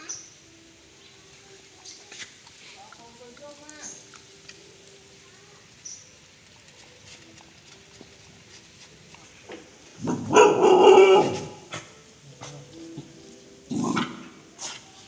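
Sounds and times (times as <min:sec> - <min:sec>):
dog barking and snarling: 0:10.0 - 0:12.6, 0:13.7 - 0:15.0.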